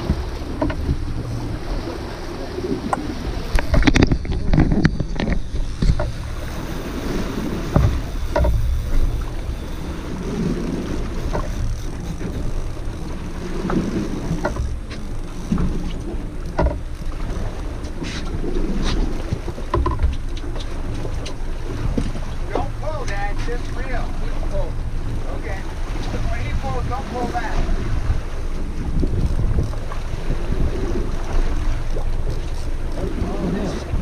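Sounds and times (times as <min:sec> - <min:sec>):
light clicks and knocks: 0:00.0 - 0:01.3, 0:07.7 - 0:09.4, 0:11.0 - 0:23.6
water moving around boat: 0:00.0 - 0:34.0
wind buffeting microphone: 0:00.0 - 0:34.0.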